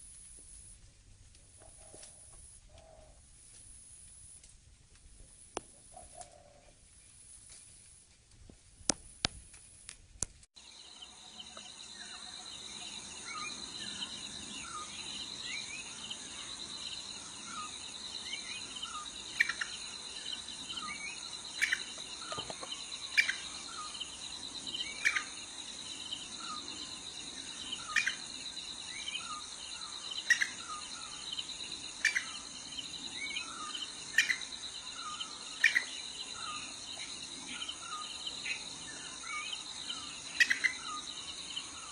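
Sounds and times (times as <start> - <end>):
high-pitched insect trill: 10.6 - 41.9
bird chirps: 33.1 - 41.9.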